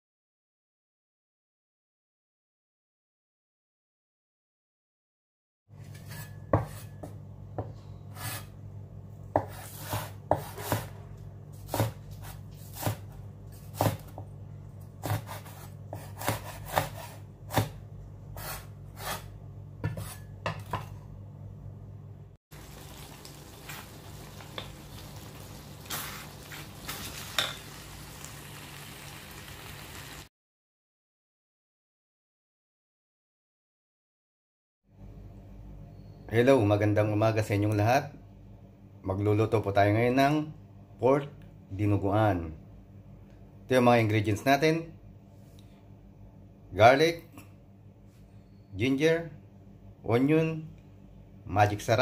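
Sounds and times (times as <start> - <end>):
cleaver chopping on wooden board: 11.7 - 14.2, 15.0 - 17.8
food sizzling in a wok: 22.5 - 30.3.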